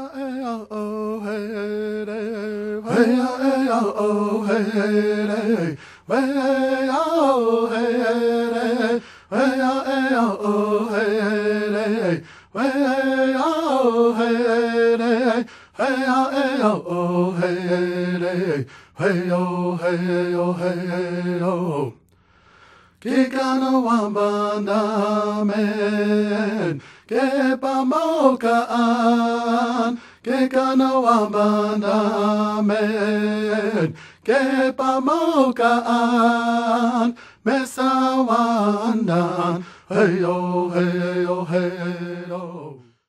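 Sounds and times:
person chanting unaccompanied: 0.0 - 22.0, 23.0 - 42.9
breaths: 5.8 - 6.1, 9.0 - 9.3, 12.2 - 12.6, 15.4 - 15.8, 18.6 - 19.0, 22.0 - 23.0, 26.8 - 27.1, 29.9 - 30.3, 33.9 - 34.3, 37.1 - 37.5, 39.6 - 39.9, 42.8 - 43.0.

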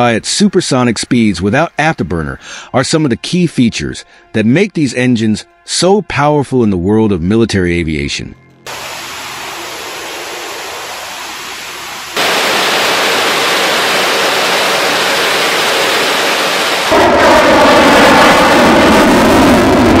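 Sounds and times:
jet engines with afterburner: 8.7 - 20.0
jet flying past: 8.7 - 20.0.

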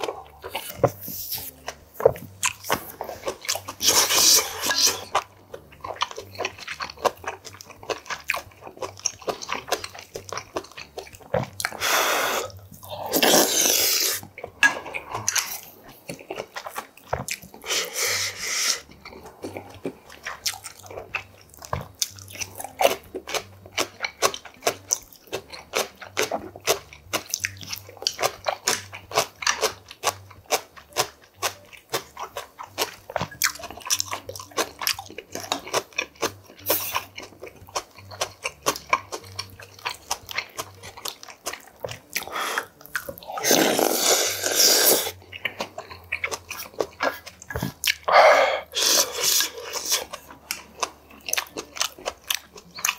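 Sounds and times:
slurping broth: 0.0 - 5.2, 11.7 - 15.7, 17.6 - 20.4, 42.2 - 45.6, 46.9 - 50.2
wet chewing: 0.0 - 52.9.

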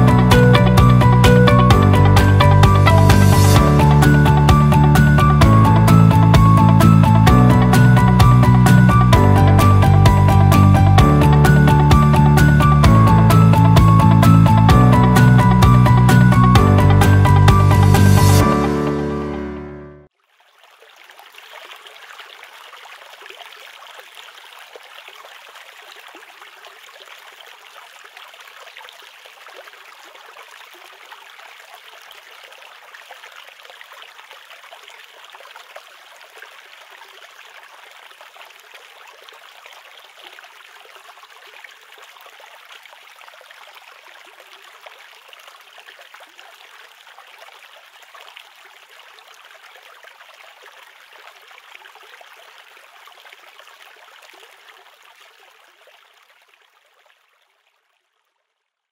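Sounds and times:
rocky stream flowing: 20.4 - 58.1.

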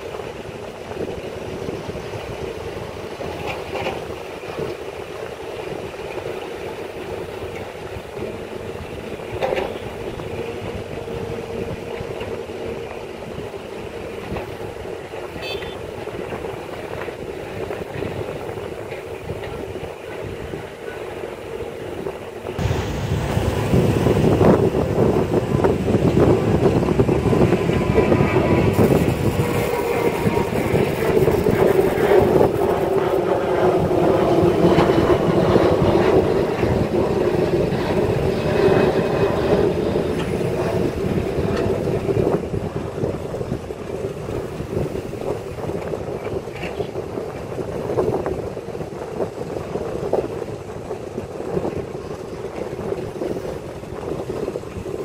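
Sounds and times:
excavator diesel engine under load: 22.6 - 32.9.

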